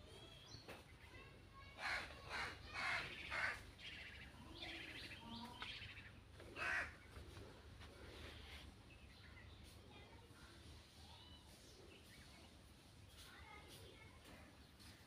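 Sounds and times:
crow cawing: 0:01.8 - 0:03.6, 0:06.6 - 0:07.0.

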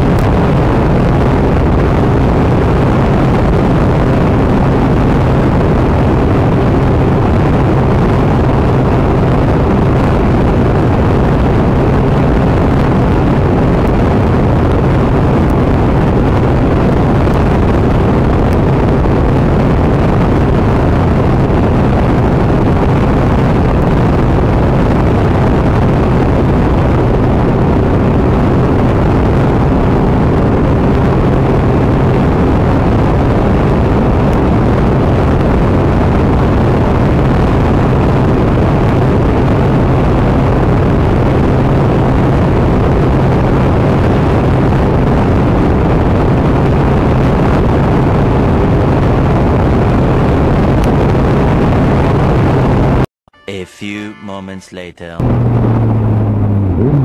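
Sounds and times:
motorcycle engine hum: 0:00.0 - 0:33.5, 0:55.2 - 0:57.0.

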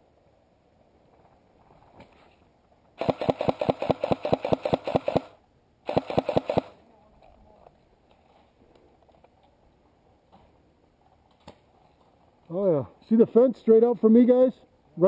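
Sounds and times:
airsoft rifle full-auto bursts: 0:03.0 - 0:06.8.

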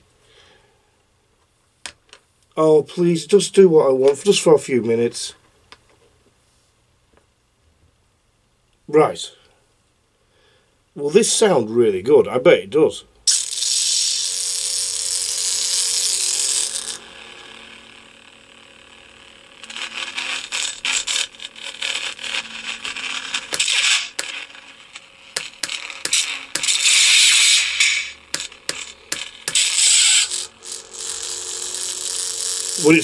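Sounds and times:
crackling clicks: 0:19.6 - 0:33.0
lightsaber hissing bursts: 0:23.5 - 0:24.3, 0:25.4 - 0:30.5.

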